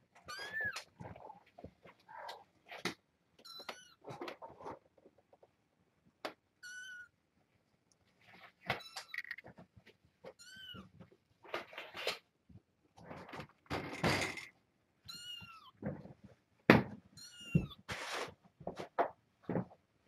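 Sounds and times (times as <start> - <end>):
scraping and rustling: 0.2 - 3.0, 3.7 - 5.6, 8.1 - 12.3, 17.6 - 19.0.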